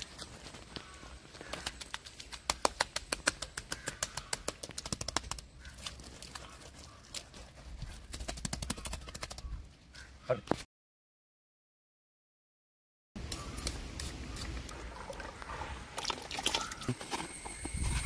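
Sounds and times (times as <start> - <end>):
hands slapping wet mud: 0.0 - 9.6.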